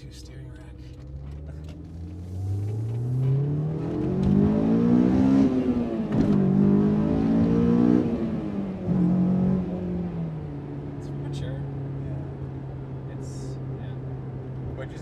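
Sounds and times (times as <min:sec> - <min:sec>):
car engine accelerating hard: 0:00.6 - 0:15.0.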